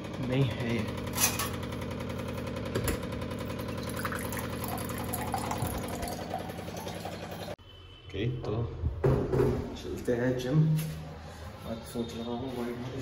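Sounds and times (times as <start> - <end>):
steady machine hum: 0.0 - 7.6.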